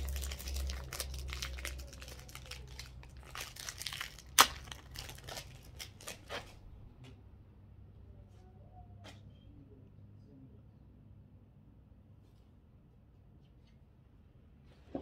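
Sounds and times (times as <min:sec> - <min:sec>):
wrapper sharp snap: 0:00.0 - 0:06.5
foil wrapper tearing and crinkling: 0:00.0 - 0:06.6.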